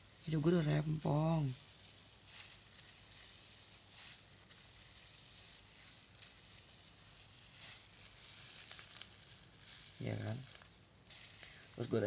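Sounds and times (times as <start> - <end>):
hand rustling wet hair: 0.0 - 12.0.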